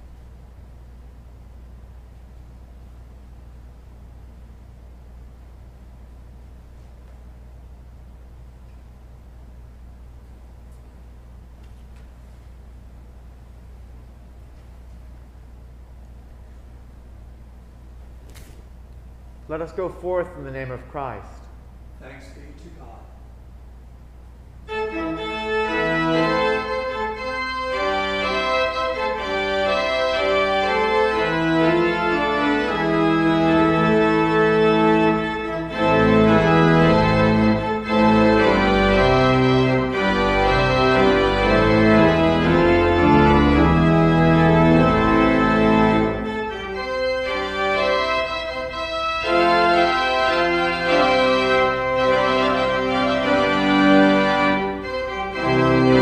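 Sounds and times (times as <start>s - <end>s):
deep organ bass notes: 15.2s - 56.0s
church organ chords: 19.2s - 23.6s, 24.3s - 56.0s.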